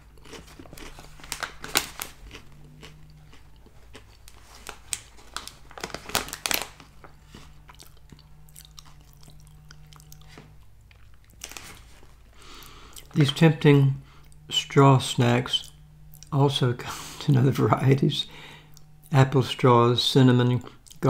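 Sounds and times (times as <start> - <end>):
crunchy snack being chewed: 0.0 - 13.2.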